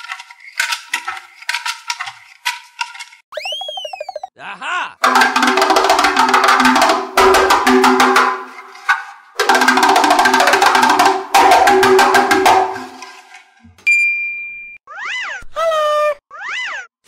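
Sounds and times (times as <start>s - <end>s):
wood-block and drum hits: 5.0s - 8.6s, 9.4s - 13.0s.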